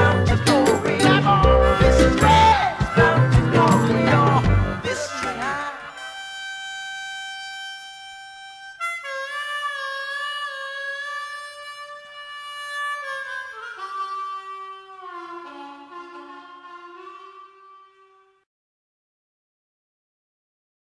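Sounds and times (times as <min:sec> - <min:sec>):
solo harmonica: 0:00.0 - 0:18.4.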